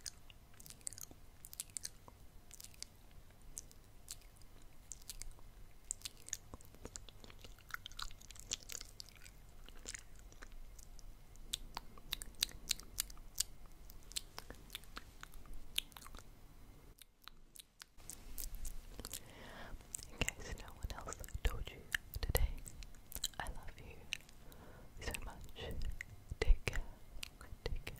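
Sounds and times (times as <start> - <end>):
lip smacks: 0.0 - 2.9, 3.5 - 16.3, 17.0 - 23.5
wet tongue clicks: 0.0 - 2.9, 3.5 - 16.3, 17.0 - 19.2, 19.9 - 23.5.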